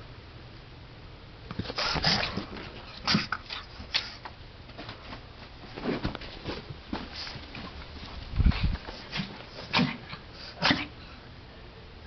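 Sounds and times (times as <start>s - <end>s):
dog breathing and snuffling: 1.6s - 4.3s, 5.8s - 10.9s.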